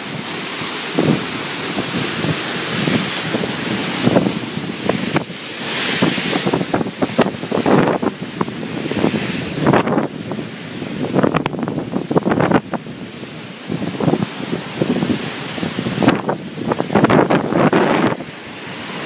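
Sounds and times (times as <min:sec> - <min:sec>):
hissing rush of water: 0:00.0 - 0:19.0
ocean surf: 0:00.0 - 0:19.0
wind buffeting microphone: 0:00.0 - 0:19.0.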